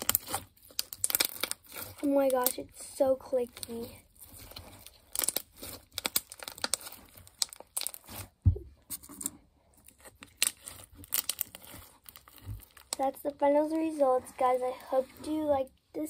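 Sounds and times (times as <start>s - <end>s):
slime clicking and popping: 0.0s - 2.7s, 3.5s - 8.2s, 9.9s - 13.1s.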